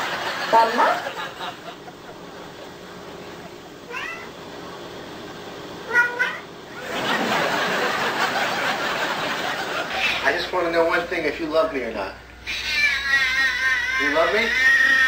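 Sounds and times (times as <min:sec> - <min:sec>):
cat meowing: 0:03.9 - 0:04.3.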